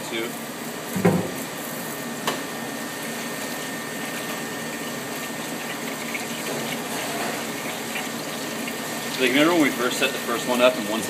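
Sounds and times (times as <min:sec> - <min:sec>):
water running through machine: 0:00.0 - 0:11.0.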